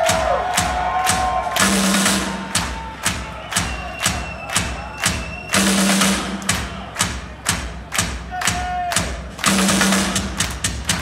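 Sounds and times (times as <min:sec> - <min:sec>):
drum hits: 0:00.0 - 0:11.0.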